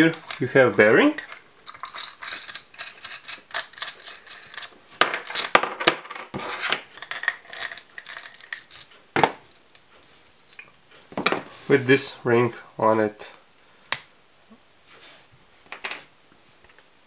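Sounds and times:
metal washers clinking: 1.2s - 11.5s.

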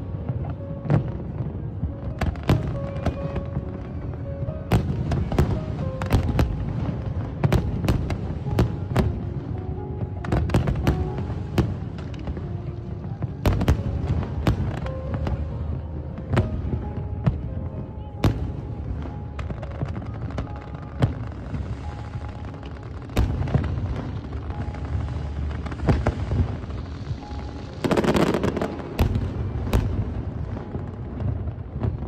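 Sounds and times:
background music: 0.0s - 32.0s
fireworks bangs and cracks: 0.0s - 32.0s.

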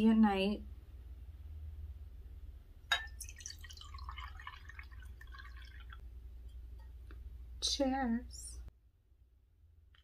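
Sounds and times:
water pouring into glass: 2.9s - 6.0s.

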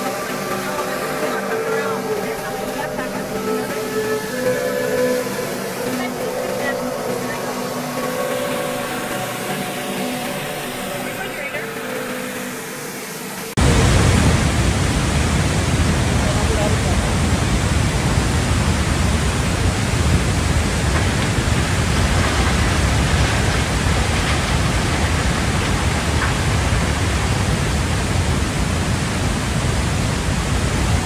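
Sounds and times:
flood water rushing: 0.0s - 31.0s
deep rumble: 13.6s - 31.0s.

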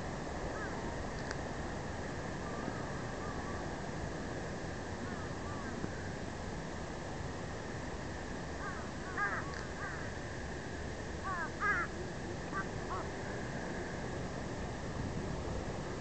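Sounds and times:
wind: 0.0s - 16.0s
crows cawing: 0.5s - 0.8s, 5.0s - 5.8s, 8.6s - 10.1s, 11.2s - 11.9s, 12.5s - 13.1s.

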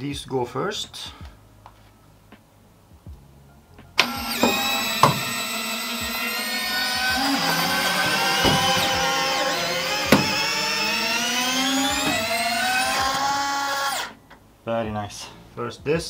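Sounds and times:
electric gearmotors whining: 4.0s - 14.2s.

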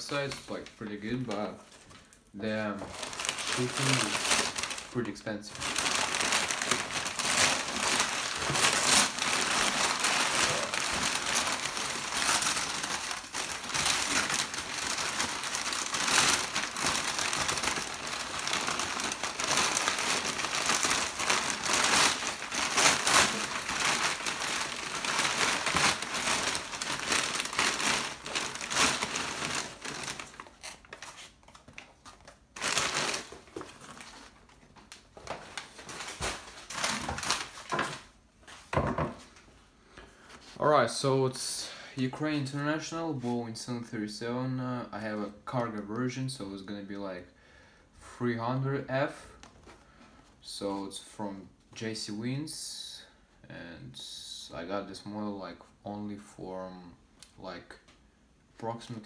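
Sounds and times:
packing paper rustling and crinkling: 0.0s - 38.8s.

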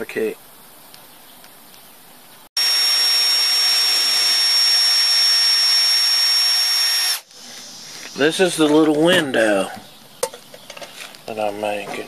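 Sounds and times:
cordless drill drilling into wood: 2.6s - 7.3s.

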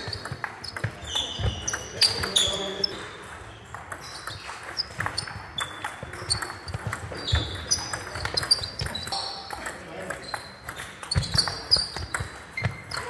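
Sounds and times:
distant table tennis rallies: 0.0s - 13.0s
shoes squeaking on floor: 0.0s - 13.0s
table tennis ball clicking: 3.7s - 13.0s.

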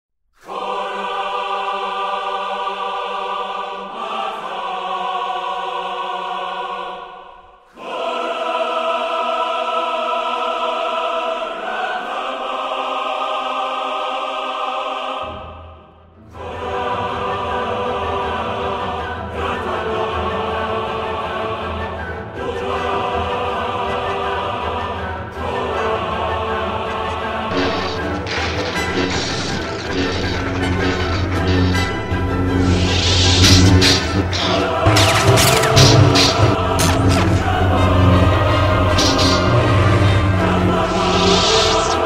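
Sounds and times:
choir singing sustained chords: 0.4s - 42.0s
deep bass: 27.5s - 42.0s.

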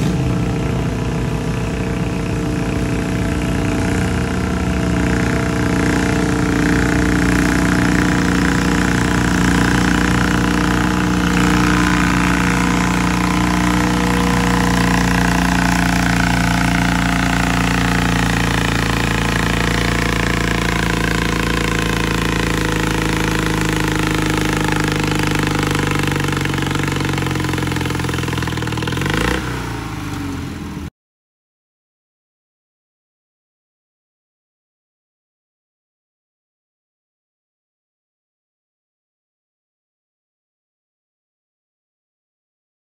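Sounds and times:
tractor engine running under load: 0.0s - 30.9s.

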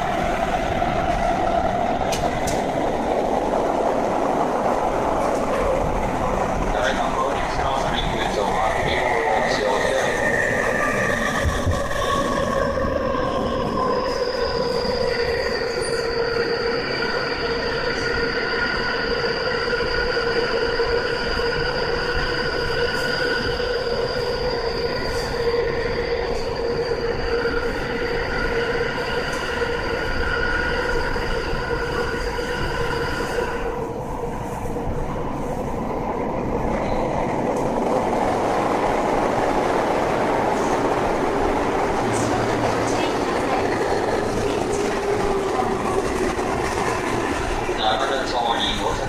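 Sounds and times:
wheel and track rumble: 34.4s - 49.0s.

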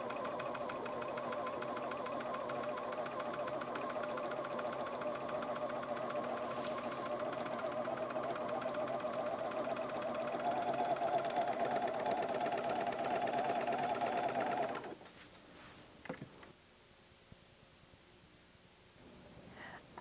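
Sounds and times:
serger machine stitching: 0.0s - 15.0s.

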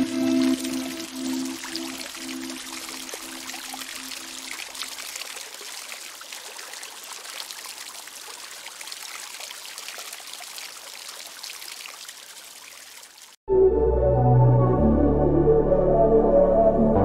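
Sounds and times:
fountain water trickling and splashing: 0.0s - 13.4s.

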